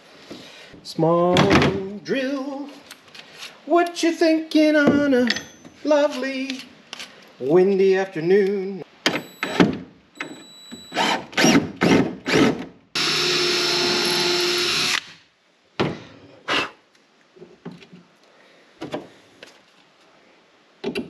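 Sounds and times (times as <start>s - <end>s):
cordless drill driving into wood: 11.0s - 15.1s.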